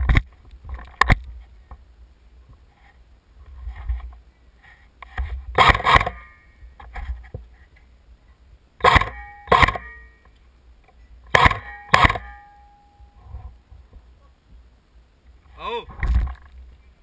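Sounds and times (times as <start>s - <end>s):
wind rumbling on microphone: 12.9s - 17.0s.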